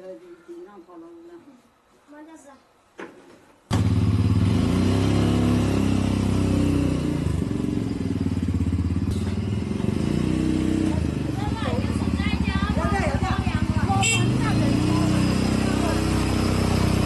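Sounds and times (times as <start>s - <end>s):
motorcycle engine running: 3.7s - 17.0s.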